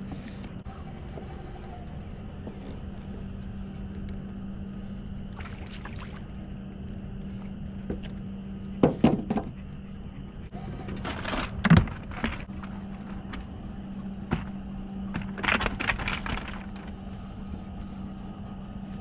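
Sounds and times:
low hum: 0:00.0 - 0:19.0
fish splashing at the surface: 0:05.3 - 0:06.3.

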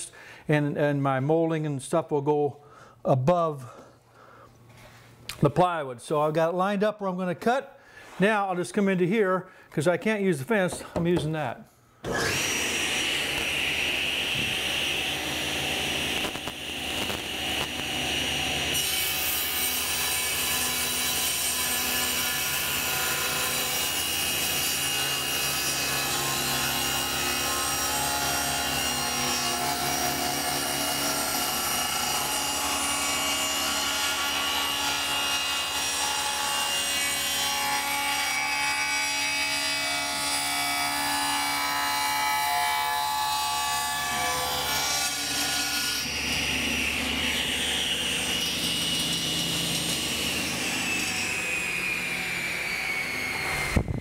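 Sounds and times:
table saw cutting wood: 0:12.0 - 0:54.0.

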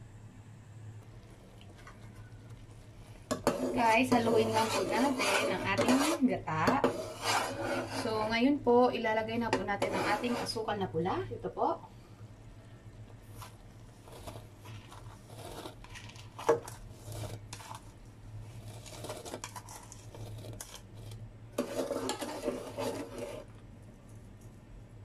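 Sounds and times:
steady low hum: 0:00.0 - 0:25.0
spoon scraping ceramic bowl: 0:03.3 - 0:08.3, 0:09.6 - 0:10.7, 0:18.5 - 0:23.5.

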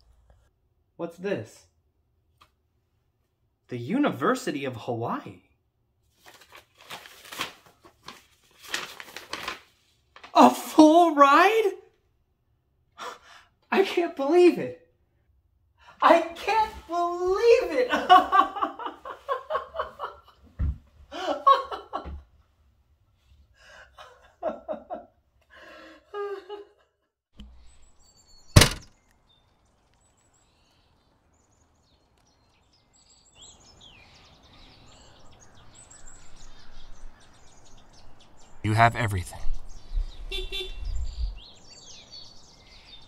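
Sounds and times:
man laughing and exclaiming: 0:10.4 - 0:11.8, 0:16.0 - 0:18.9, 0:38.7 - 0:39.5
birds chirping: 0:27.6 - 0:43.0
car trunk lid slamming: 0:28.6 - 0:28.9.

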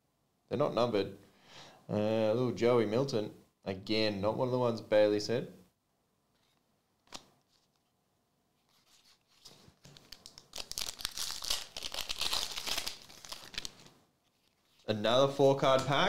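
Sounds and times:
foil wrapper tearing and crinkling: 0:08.8 - 0:14.8.

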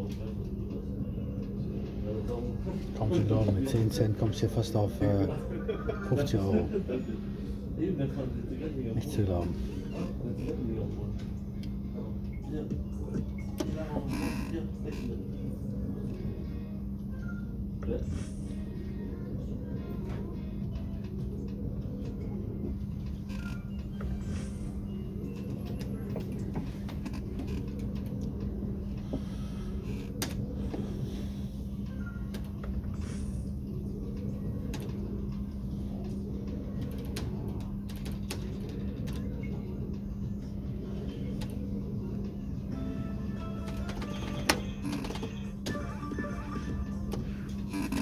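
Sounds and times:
steady low hum: 0:00.0 - 0:48.0
slot machine reel sound effect: 0:42.8 - 0:47.1.

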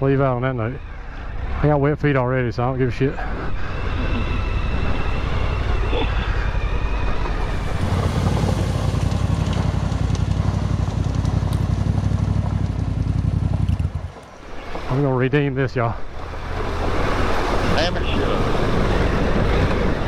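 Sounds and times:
water splashing off wheels: 0:06.6 - 0:15.1, 0:16.0 - 0:20.0
motorcycle engine under throttle: 0:07.3 - 0:14.4.

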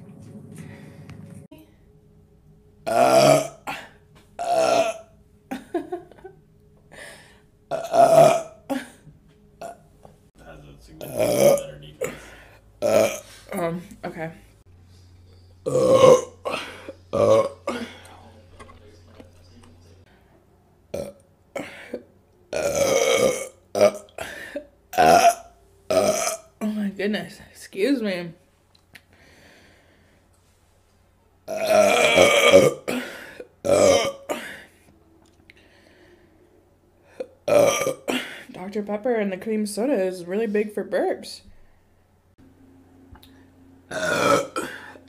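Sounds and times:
woman belching: 0:02.8 - 0:05.7, 0:07.7 - 0:09.0, 0:09.6 - 0:09.8, 0:11.0 - 0:12.2, 0:12.8 - 0:13.6, 0:15.6 - 0:18.0, 0:20.9 - 0:24.2, 0:24.9 - 0:26.7, 0:31.5 - 0:34.6, 0:37.2 - 0:38.4, 0:43.9 - 0:45.0
woman burping: 0:02.8 - 0:06.3, 0:07.7 - 0:09.8, 0:11.0 - 0:13.8, 0:15.6 - 0:18.1, 0:20.9 - 0:26.8, 0:31.5 - 0:34.7, 0:37.2 - 0:38.5, 0:43.9 - 0:45.0.

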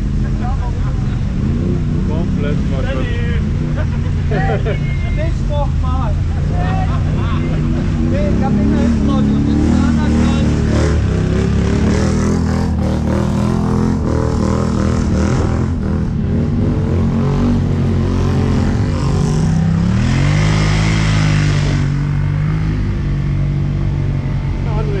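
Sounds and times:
engine revving up: 0:06.4 - 0:25.0.

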